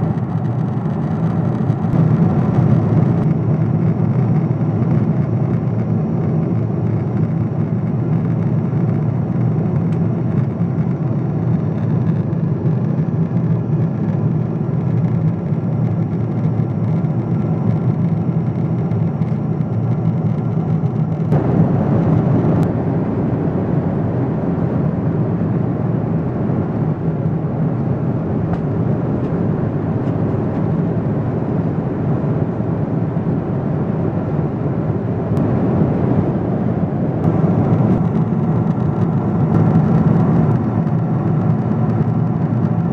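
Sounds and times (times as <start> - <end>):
aircraft cabin engine drone: 0.0 - 42.9.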